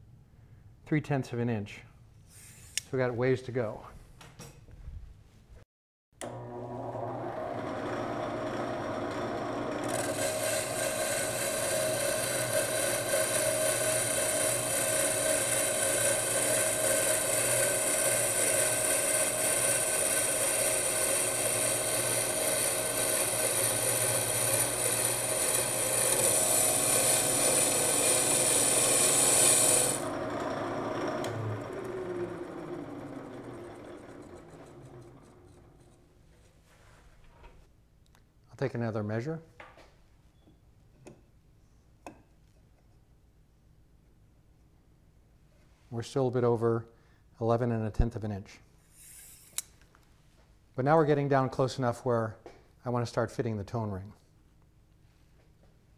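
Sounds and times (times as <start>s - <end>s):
wood lathe motor hum: 6.2s - 36.1s
hissing scrape of wood turning: 48.9s - 49.7s.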